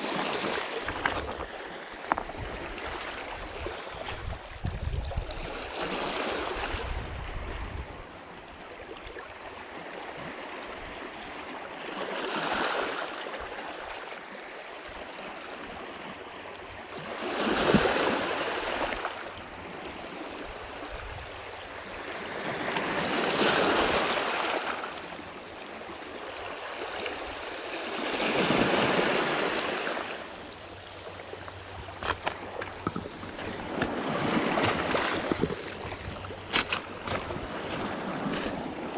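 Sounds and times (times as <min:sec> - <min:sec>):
waves washing over pebbles: 0:00.0 - 0:04.4, 0:26.2 - 0:38.9.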